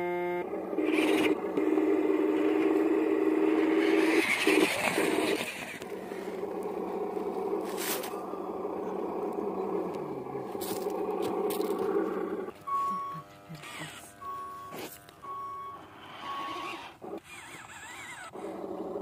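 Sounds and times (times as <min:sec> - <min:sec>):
toy electric motor whining: 0:00.0 - 0:19.0
tyres crunching on soil: 0:05.6 - 0:13.0, 0:13.6 - 0:15.6.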